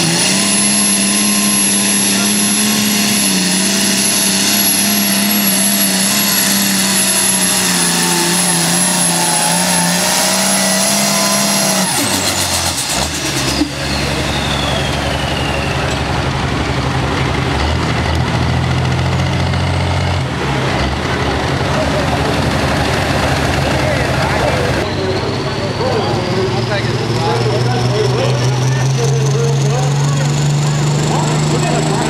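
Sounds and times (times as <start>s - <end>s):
diesel tractor engine running: 0.0s - 32.0s
high turbo whine: 0.0s - 32.0s.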